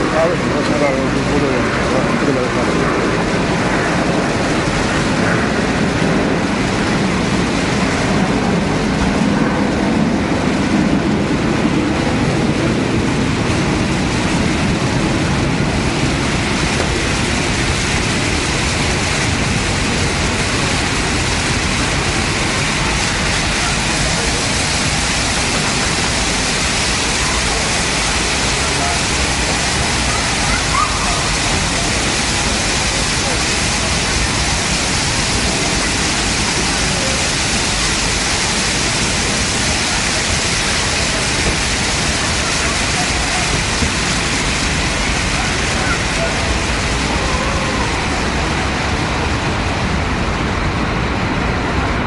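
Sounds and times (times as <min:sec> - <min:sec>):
fountain jets splashing: 0:00.0 - 0:52.0
low rumble: 0:00.0 - 0:52.0.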